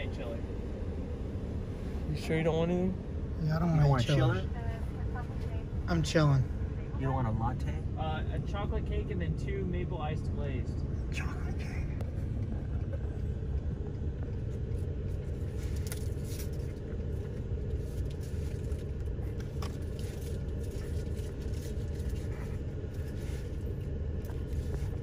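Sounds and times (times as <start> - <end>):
vehicle rumble inside cabin: 0.0 - 25.0
faint clicks and rustles: 12.0 - 25.0.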